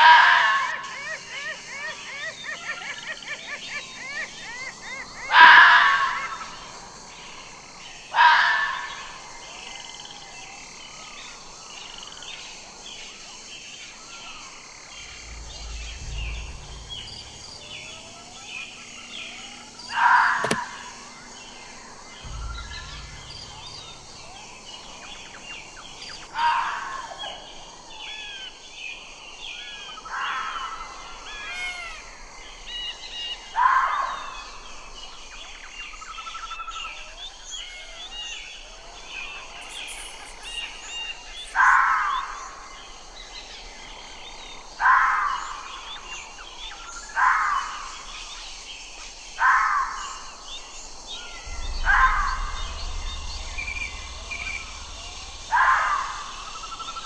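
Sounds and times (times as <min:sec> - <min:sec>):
birds chirping: 0:14.9 - 0:27.6, 0:30.0 - 0:44.7, 0:50.0 - 0:57.0
fox calling: 0:31.3 - 0:32.1.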